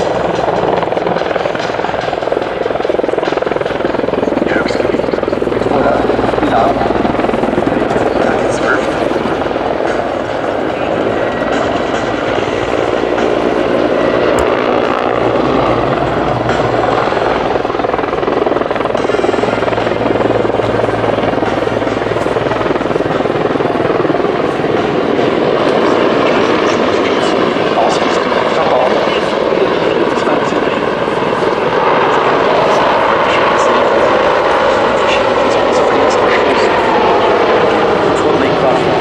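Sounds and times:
helicopter in flight: 0.0s - 39.0s.

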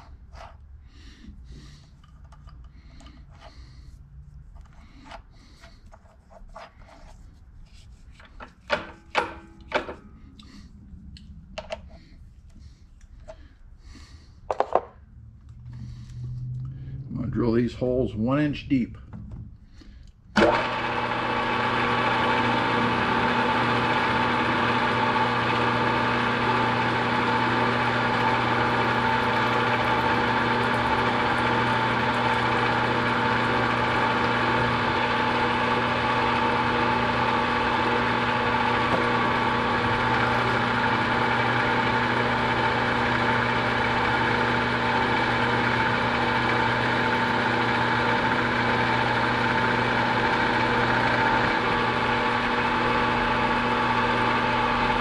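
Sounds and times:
drill bit boring metal: 20.4s - 55.0s
milling machine spindle running: 20.4s - 55.0s.

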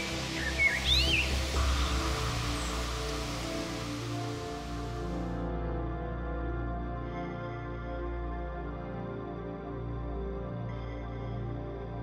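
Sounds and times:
steady hiss: 0.0s - 5.4s
slow ambient music: 0.0s - 12.0s.

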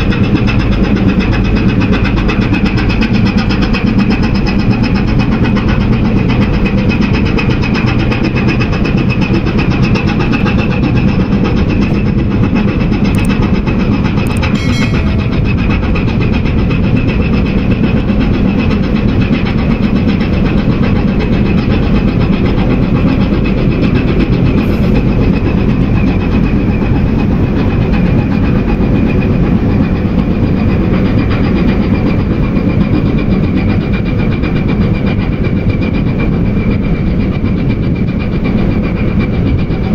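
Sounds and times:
large engine running: 0.0s - 39.9s
high whine: 11.6s - 18.6s, 24.0s - 26.8s.

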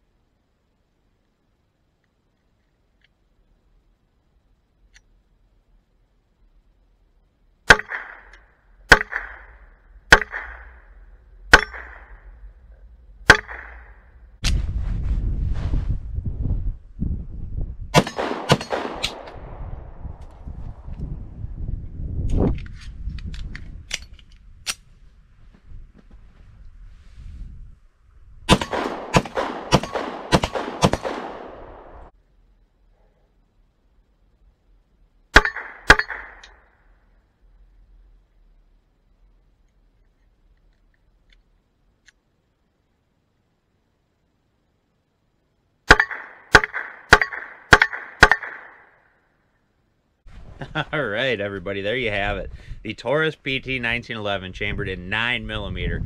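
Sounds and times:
pistol shots: 7.7s - 12.3s, 13.2s - 14.1s, 18.0s - 19.4s, 28.5s - 32.1s, 35.4s - 36.6s, 45.9s - 49.0s
loud low rushing noise: 9.1s - 22.5s, 26.8s - 32.1s
steel target ringing: 11.5s - 12.4s, 13.2s - 14.2s, 35.4s - 36.6s, 45.9s - 48.8s.

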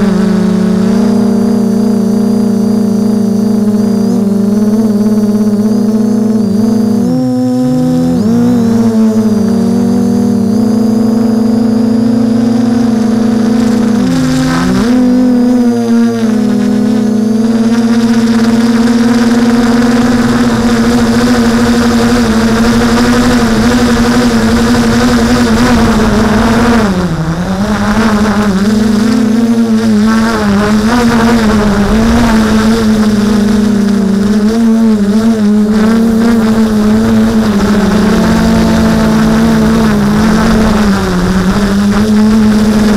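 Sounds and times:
drone propellers buzzing: 0.0s - 42.9s.

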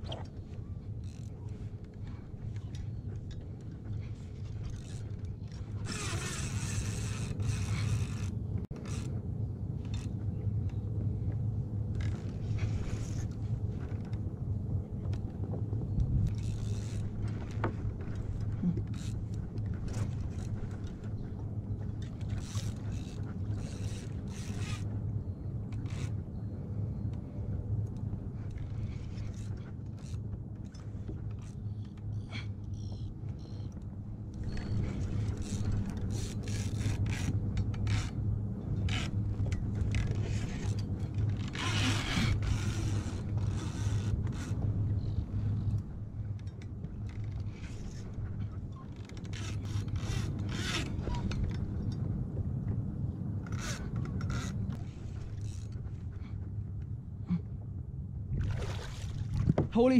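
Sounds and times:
fishing gear scraping and clicking: 0.0s - 9.2s, 16.0s - 25.0s, 27.9s - 52.1s, 53.4s - 56.2s
low steady hum: 0.0s - 59.9s.

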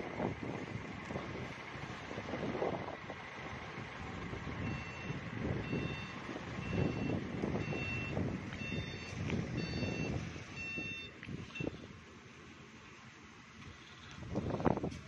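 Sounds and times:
steady low rumble: 0.0s - 15.0s
reversing alarm beeping: 4.6s - 11.8s.

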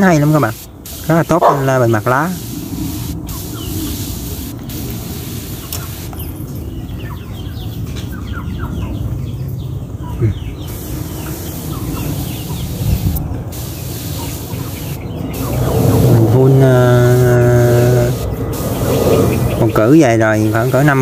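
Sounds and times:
spray wand hissing: 0.0s - 1.3s, 2.0s - 6.2s, 10.7s - 19.6s, 20.5s - 21.0s
birds chirping: 0.0s - 21.0s.

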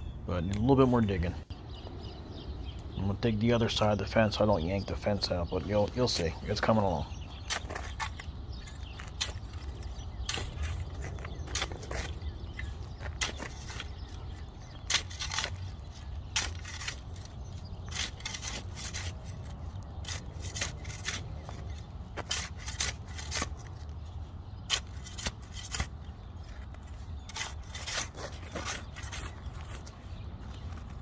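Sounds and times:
shovel scraping soil: 5.8s - 23.9s, 24.6s - 30.0s.

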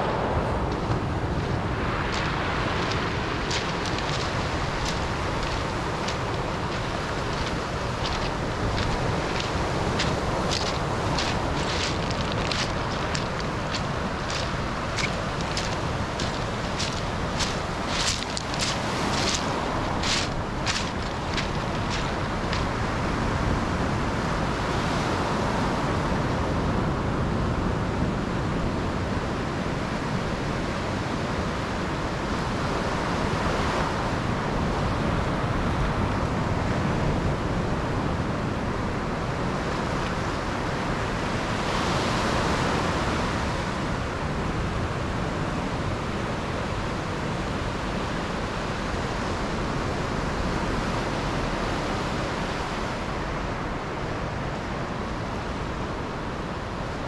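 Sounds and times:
surf breaking on beach: 0.0s - 23.8s.

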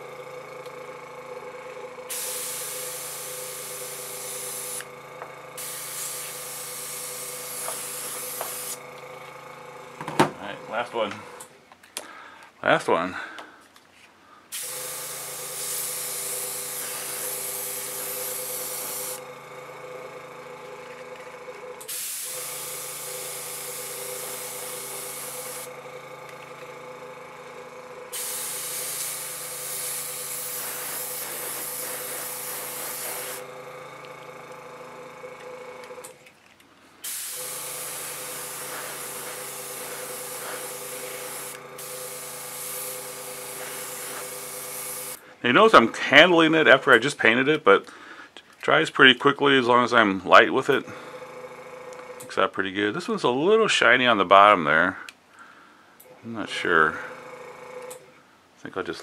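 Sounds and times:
air compressor humming: 0.0s - 58.6s
airbrush hissing: 2.1s - 4.9s, 5.6s - 8.8s, 14.5s - 19.3s, 21.9s - 25.7s, 28.1s - 33.5s, 37.0s - 45.2s.

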